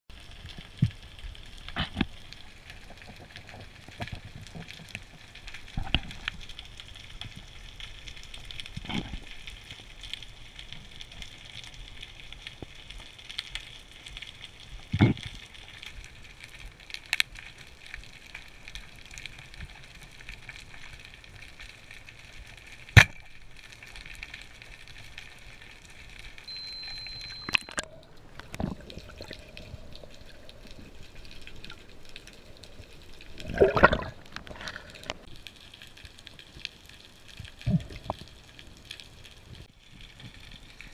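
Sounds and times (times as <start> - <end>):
short faint beep: 26.5 - 28.0.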